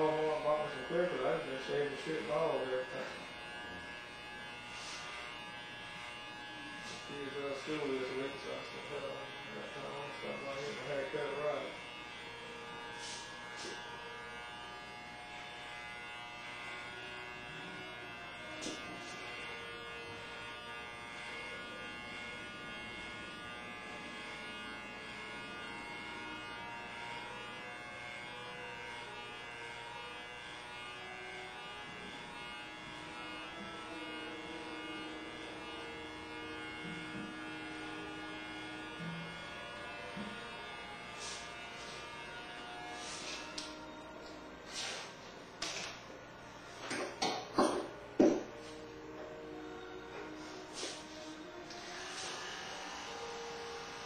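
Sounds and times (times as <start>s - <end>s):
hair clippers buzzing: 0.0s - 54.0s.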